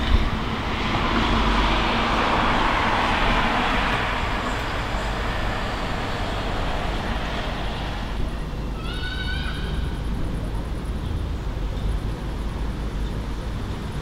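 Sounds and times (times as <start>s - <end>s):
vehicle passing by: 0.0s - 8.8s.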